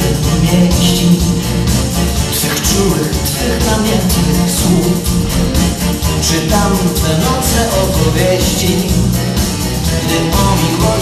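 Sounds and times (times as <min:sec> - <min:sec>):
swing dance music: 0:00.0 - 0:08.6.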